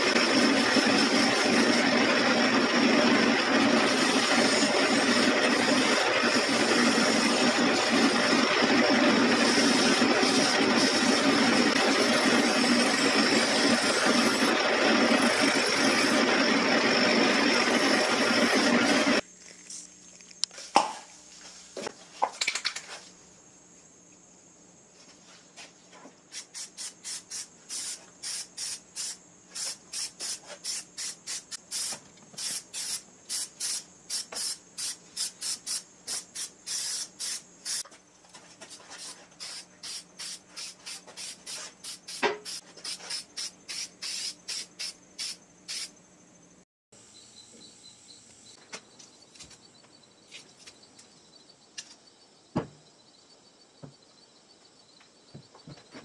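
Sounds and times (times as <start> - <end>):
aerosol can spraying: 0.1 - 14.5, 26.3 - 37.8, 38.7 - 45.9.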